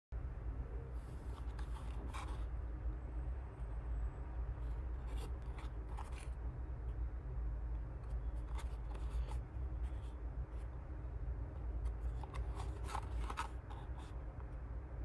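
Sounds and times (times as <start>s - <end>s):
steady low hum: 0.1s - 15.0s.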